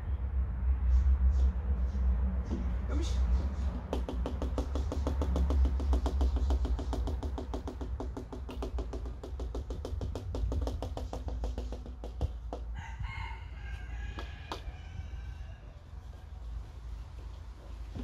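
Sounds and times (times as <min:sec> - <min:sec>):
rapid even ticking: 0:03.9 - 0:12.7.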